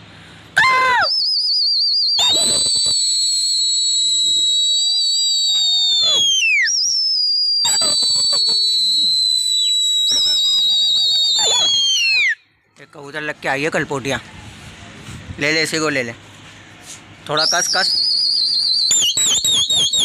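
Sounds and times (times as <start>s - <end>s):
warbling whistle trill: 0.6s - 12.4s, 17.4s - 20.0s
shrill whistle blasts: 0.6s - 12.5s, 17.3s - 20.0s.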